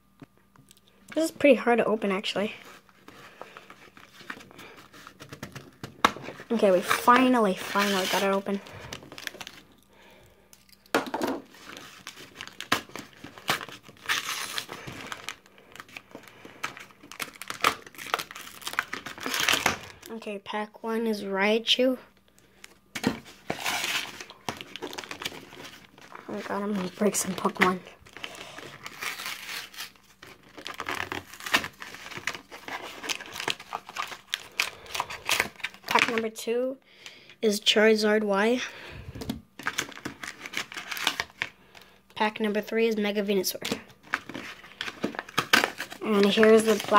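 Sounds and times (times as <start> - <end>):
cardboard and paper rustling: 2.2 - 9.7, 11.2 - 20.1, 23.0 - 36.3, 43.5 - 46.9
foil wrappers crinkling: 2.2 - 20.2, 22.5 - 36.2, 39.1 - 42.1, 43.5 - 46.9
cards being handled: 2.6 - 9.6.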